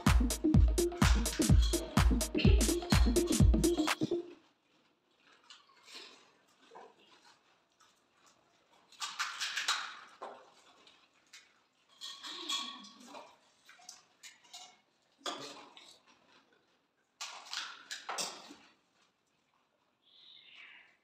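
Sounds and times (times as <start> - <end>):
steel plates clinking: 1.3 - 2.0.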